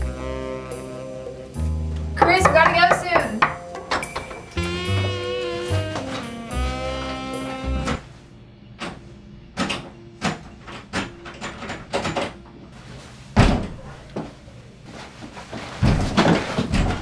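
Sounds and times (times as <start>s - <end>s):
locked door rattling in frame: 9.6s - 12.4s
heavy door thump: 13.4s - 13.8s, 15.8s - 17.0s.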